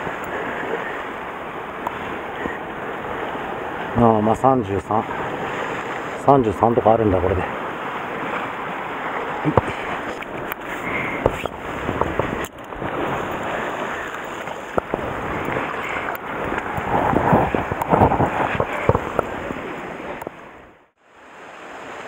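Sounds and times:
surf washing against rocks: 0.0 - 22.0
wind buffeting microphone: 7.5 - 20.8.

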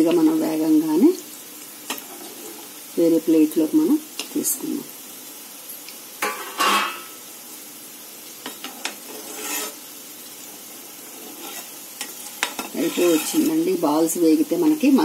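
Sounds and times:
deep-frying sizzle in oil: 0.0 - 15.0
metal skimmer scraping and clinking: 6.2 - 7.1, 12.8 - 13.5.

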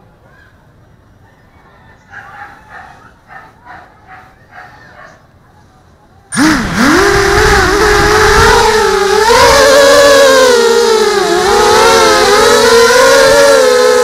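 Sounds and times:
quadcopter motors whining: 6.3 - 14.0.

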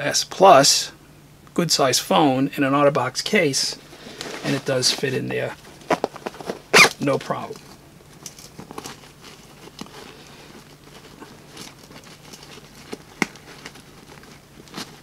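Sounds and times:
fabric rustling: 3.8 - 15.0.

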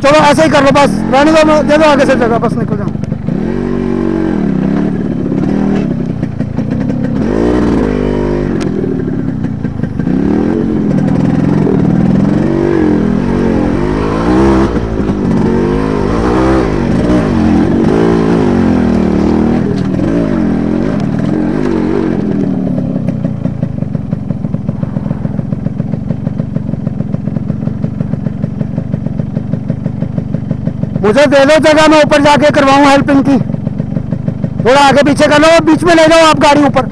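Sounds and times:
motorcycle engine revving: 0.0 - 36.9.

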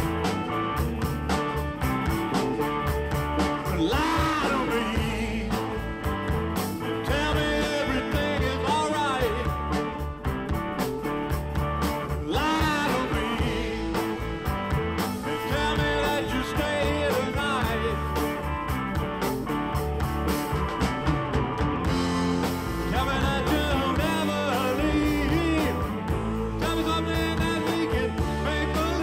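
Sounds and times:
blues-rock band playing: 0.0 - 29.0
person singing: 3.6 - 10.0, 12.1 - 14.3, 15.1 - 18.4, 22.8 - 29.0.

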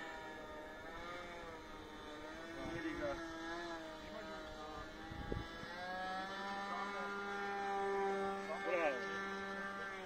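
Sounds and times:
model plane engine droning overhead: 0.0 - 10.0.

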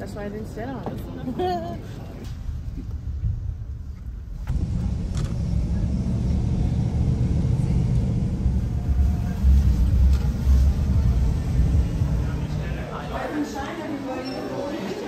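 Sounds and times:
vehicle engine and road noise: 2.2 - 13.4.

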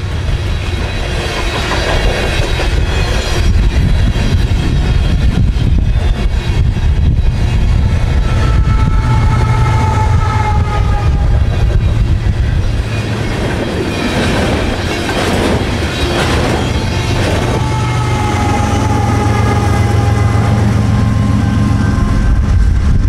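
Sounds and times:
train wheels clickety-clack: 0.0 - 19.7
steady high tone: 6.5 - 23.0.

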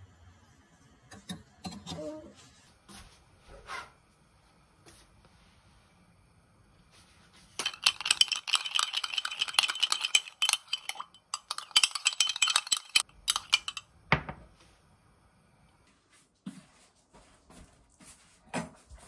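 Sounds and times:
spoon clinking in ramekin: 7.6 - 13.9.

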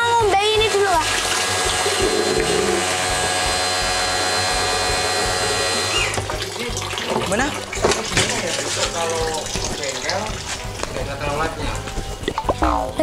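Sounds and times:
water spraying and splashing: 0.5 - 12.4
pressure washer whine: 0.7 - 6.4.

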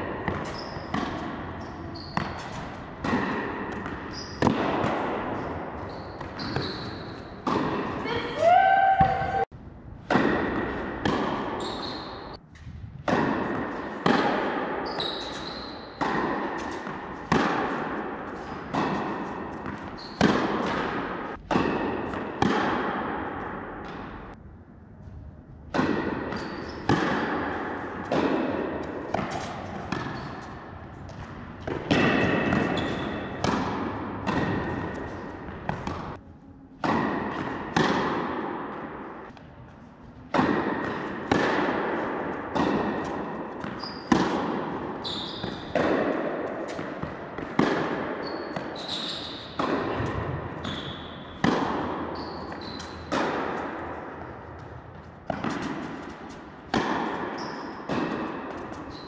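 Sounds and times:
ball bouncing: 0.0 - 24.4, 25.7 - 36.2, 40.3 - 59.0
tennis racket striking ball: 0.0 - 24.4, 25.7 - 36.2, 36.8 - 39.5, 40.2 - 59.0
shoe squeaks: 0.4 - 0.9, 1.5 - 2.8, 4.0 - 4.5, 5.8 - 7.4, 11.6 - 12.4, 14.8 - 16.0, 19.7 - 20.4, 26.4 - 26.9, 30.0 - 30.6, 32.6 - 33.4, 43.6 - 44.2, 45.0 - 45.7, 48.2 - 49.6, 50.6 - 51.4, 52.0 - 53.1, 57.2 - 57.9, 58.6 - 59.0.

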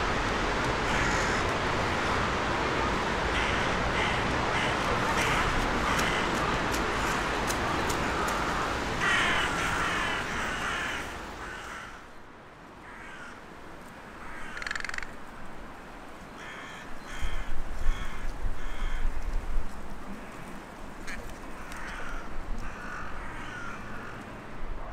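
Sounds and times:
crows cawing: 0.9 - 1.5, 3.3 - 7.3, 8.0 - 12.1, 12.8 - 13.4, 14.2 - 15.2, 16.4 - 19.1, 21.0 - 24.2.

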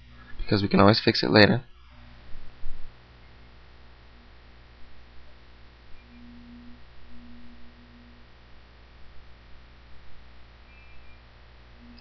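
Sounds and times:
mains hum and hiss: 0.0 - 12.0
faint low tone: 5.1 - 12.0.

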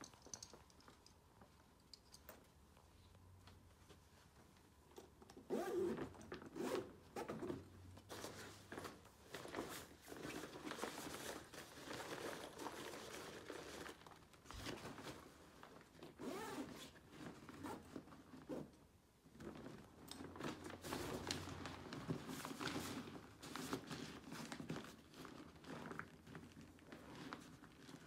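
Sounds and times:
zippers being pulled: 5.4 - 7.7, 16.2 - 17.0
fabric bags rustling: 5.5 - 18.5, 19.2 - 28.0.

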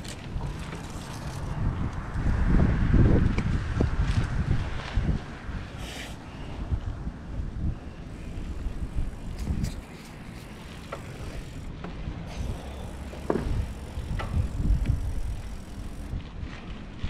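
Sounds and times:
bicycle clicks: 0.0 - 2.3, 8.1 - 16.2
wind and riding noise: 0.0 - 17.0.

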